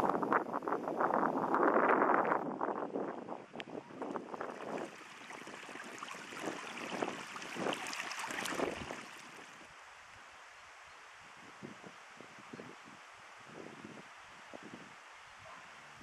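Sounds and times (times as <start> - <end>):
stream babbling over stones: 4.0 - 9.7.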